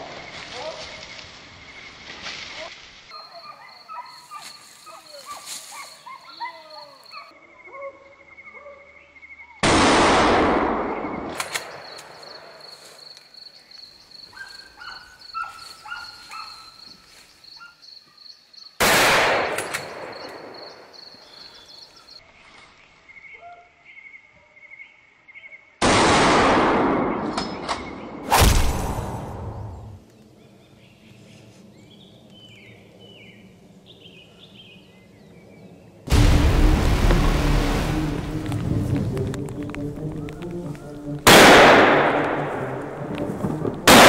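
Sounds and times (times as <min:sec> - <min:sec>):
birds chirping: 0:03.1 - 0:09.6, 0:11.0 - 0:18.8, 0:19.8 - 0:22.2, 0:38.0 - 0:41.2
gunshots echoing: 0:09.6 - 0:12.6, 0:18.8 - 0:20.8, 0:25.8 - 0:27.4, 0:41.2 - 0:44.0.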